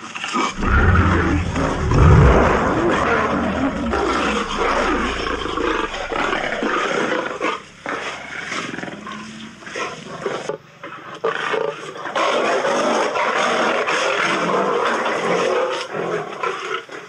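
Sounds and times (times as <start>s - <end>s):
lions roaring and growling: 0.6s - 7.0s.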